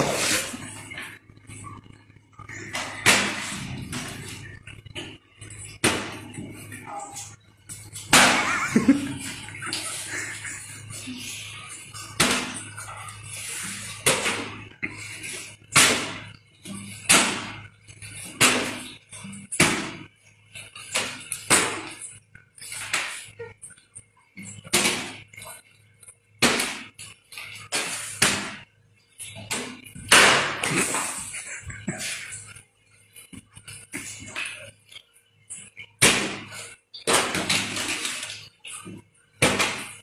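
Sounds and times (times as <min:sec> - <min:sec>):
plastic bottles smacking concrete: 0:36.0 - 0:40.0.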